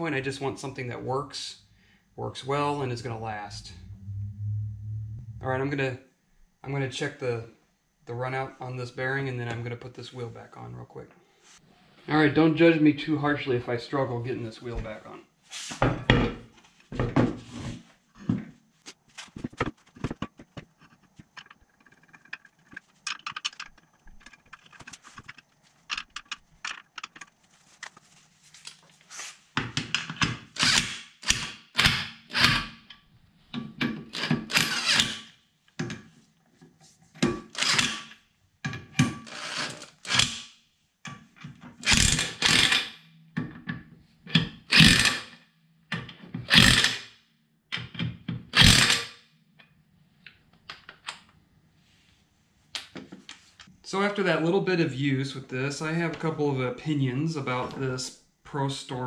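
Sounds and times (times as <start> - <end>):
electric impact wrench bursts: 44.7 - 45.2.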